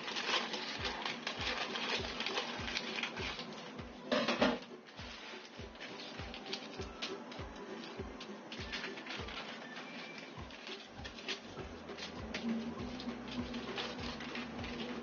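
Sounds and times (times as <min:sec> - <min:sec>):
scissors cutting paper: 0:00.0 - 0:03.8, 0:04.9 - 0:15.0
paper rustling and crinkling: 0:00.0 - 0:15.0
soft background music: 0:00.0 - 0:15.0.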